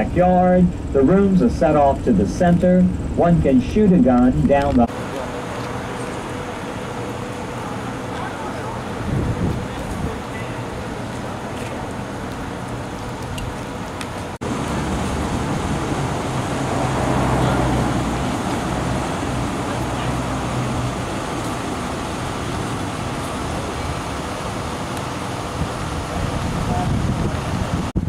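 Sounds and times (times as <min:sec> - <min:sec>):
traffic rumble: 0:00.0 - 0:28.0
vehicle passing: 0:14.4 - 0:26.8.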